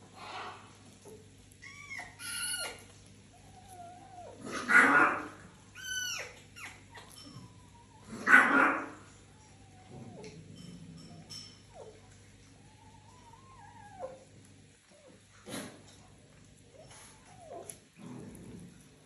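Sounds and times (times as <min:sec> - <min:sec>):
foxes whining and yipping: 0:01.6 - 0:10.4, 0:11.3 - 0:15.2, 0:16.7 - 0:17.8
fox harsh cries: 0:04.4 - 0:06.4.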